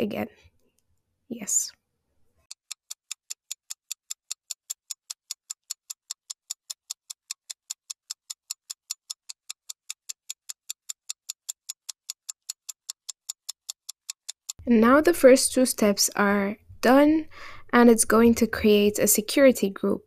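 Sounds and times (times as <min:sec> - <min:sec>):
clock ticking: 0:02.4 - 0:16.0.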